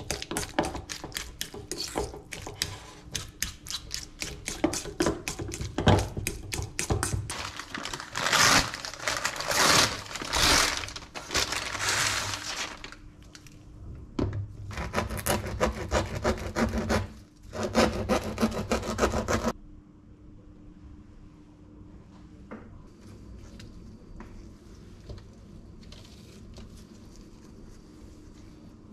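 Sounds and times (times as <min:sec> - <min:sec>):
utensil stirring in metal bowl: 0:00.0 - 0:07.4
paper bag rustling: 0:07.3 - 0:13.6
knife sawing crusty bread: 0:14.7 - 0:19.5.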